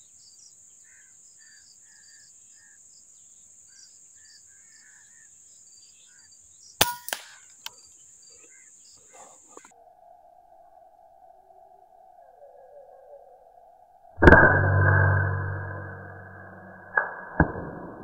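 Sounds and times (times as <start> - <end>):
birds chirping: 0.0 - 9.7, 10.3 - 14.1
rifle click: 6.8 - 7.4
air rifle crack: 6.8 - 7.7.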